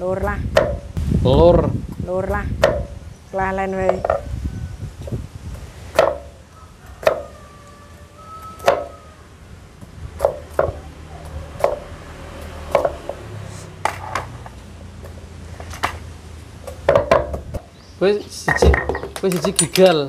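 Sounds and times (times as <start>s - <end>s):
knife chopping on cutting board: 7.0s - 7.2s.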